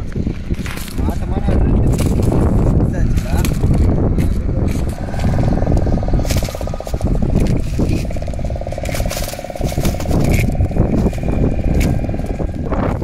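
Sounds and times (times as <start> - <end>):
wind rumbling on microphone: 0.0 - 13.0
fast-pulsing motor buzz: 4.6 - 13.0.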